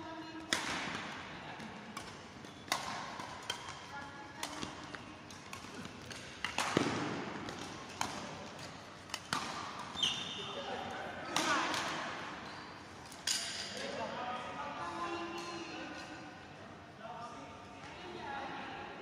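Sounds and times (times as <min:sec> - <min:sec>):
rackets hitting shuttlecock: 0:00.4 - 0:12.4.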